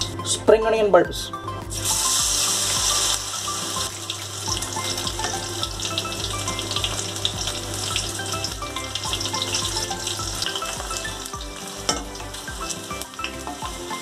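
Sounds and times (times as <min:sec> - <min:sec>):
onions sizzling in hot oil: 0:01.8 - 0:14.0.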